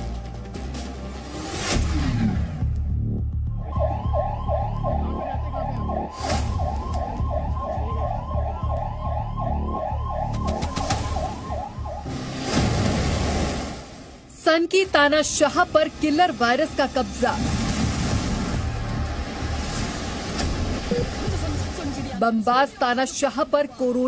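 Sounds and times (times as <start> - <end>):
ambulance siren yelping: 3.4 - 12.2.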